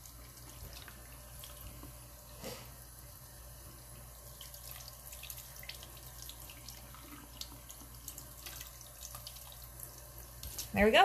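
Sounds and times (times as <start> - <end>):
brush rinsed under water stream: 0.0 - 11.0
faucet running into sink: 4.2 - 10.6.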